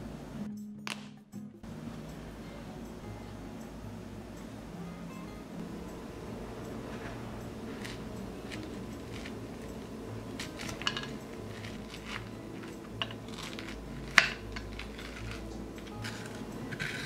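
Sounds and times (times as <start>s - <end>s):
spoon scraping squash pulp: 6.6s - 17.0s.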